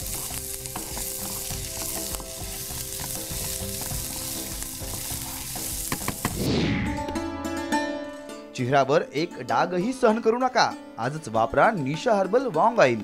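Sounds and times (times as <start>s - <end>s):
food sizzling in frying pan: 0.0s - 6.4s
falling whoosh: 6.3s - 7.7s.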